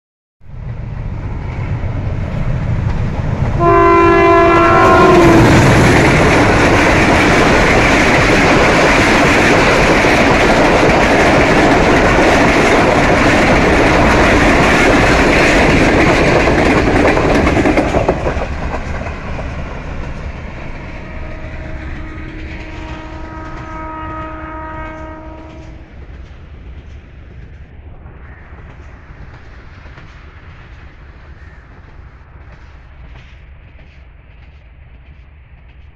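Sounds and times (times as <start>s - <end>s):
train rumble and clickety-clack: 0.5s - 35.9s
train horn blast: 3.6s - 6.3s, 20.9s - 25.8s.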